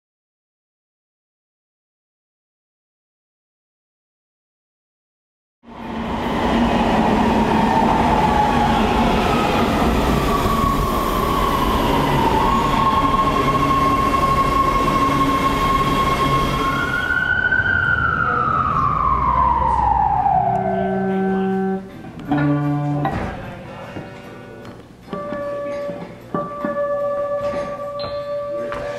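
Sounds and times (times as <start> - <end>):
train rumbling: 5.7 - 23.7
train whine: 5.7 - 24.4
music with bell-like notes: 22.6 - 28.9.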